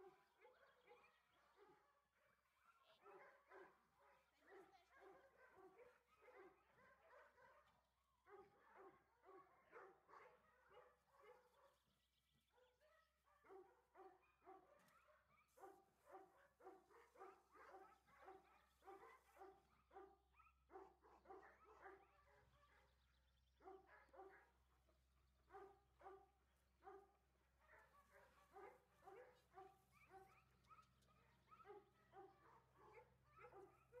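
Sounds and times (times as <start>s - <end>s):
faint dog barking: 0.0s - 11.9s, 12.5s - 34.0s.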